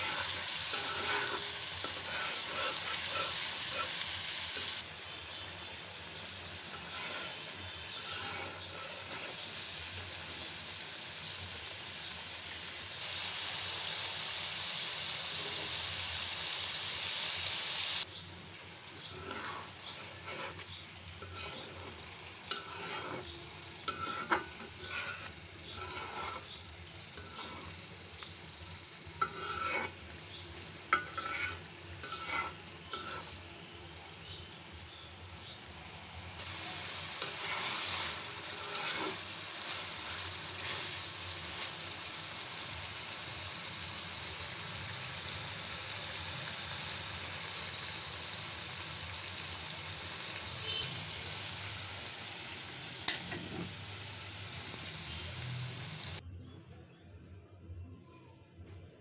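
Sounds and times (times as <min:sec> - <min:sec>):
metal spatula scraping pan: 0:00.0 - 0:04.8, 0:06.6 - 0:09.7, 0:19.0 - 0:33.4, 0:36.8 - 0:42.1, 0:53.1 - 0:53.8
food sizzling in oil: 0:00.0 - 0:56.2.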